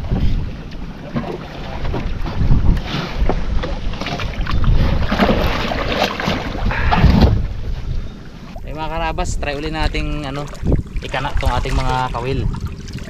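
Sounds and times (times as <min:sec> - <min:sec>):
water lapping: 0:00.0 - 0:13.0
wind buffeting microphone: 0:00.0 - 0:13.0
wooden boat knocks and clatter: 0:01.0 - 0:07.5.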